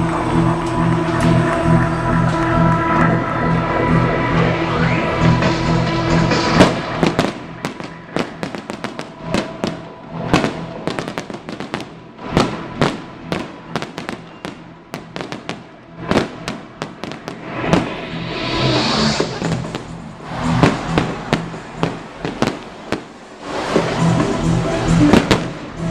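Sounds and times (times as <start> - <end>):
music: 0.0 - 25.9
fireworks bangs: 5.5 - 25.9
fireworks crackling hiss: 6.4 - 25.9.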